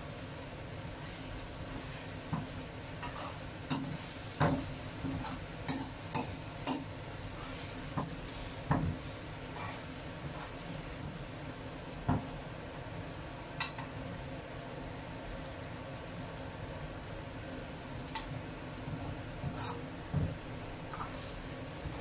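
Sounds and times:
frying sizzle: 0.0s - 22.0s
metal ladle scraping a wok: 19.4s - 19.9s.

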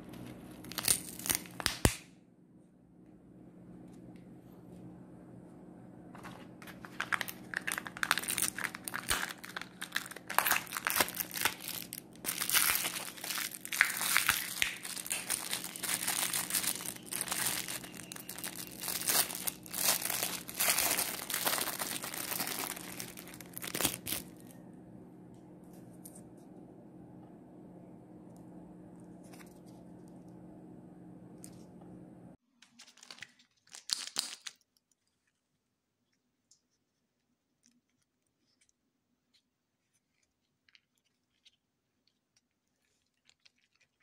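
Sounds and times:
faint low hum: 0.0s - 33.3s
plastic wrapping crinkling: 0.6s - 1.9s, 6.2s - 24.5s.

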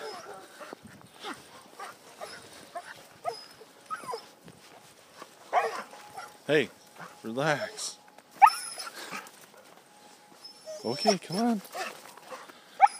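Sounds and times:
dog whining: 0.0s - 0.5s, 1.2s - 4.4s, 8.4s - 9.3s, 10.4s - 12.9s.

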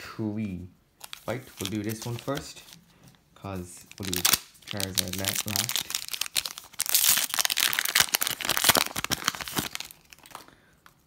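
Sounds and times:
foil wrapper crinkling: 1.0s - 2.8s, 3.8s - 10.5s.

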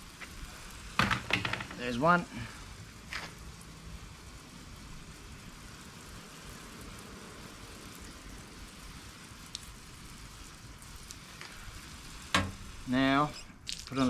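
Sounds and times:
hose nozzle spray hissing: 7.5s - 14.0s.

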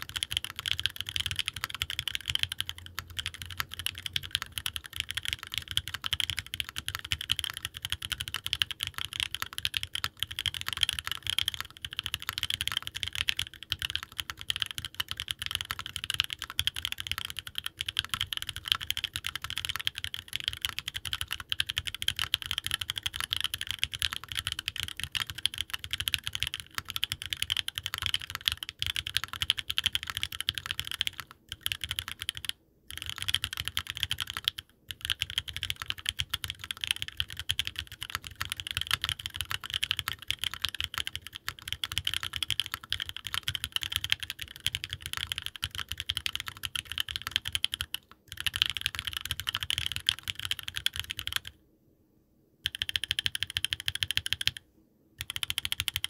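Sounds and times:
mechanical keyboard typing: 0.0s - 51.6s, 52.6s - 54.6s, 55.2s - 56.0s.

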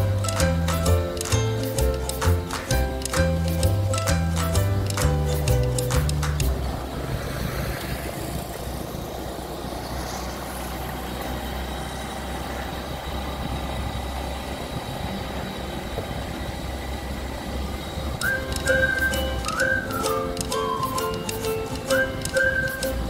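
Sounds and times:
music with whistle-like melody: 0.0s - 6.6s, 18.2s - 23.0s
tyre noise: 0.0s - 11.4s, 12.5s - 23.0s
car engine and road noise: 0.0s - 23.0s.

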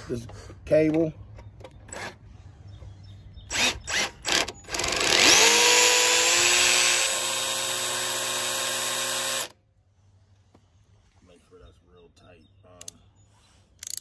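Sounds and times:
cordless drill whining: 3.5s - 9.5s.

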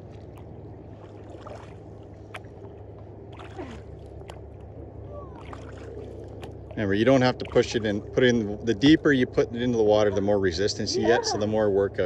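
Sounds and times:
paddle strokes through water: 0.0s - 9.6s
steady low rumble: 0.0s - 12.0s.

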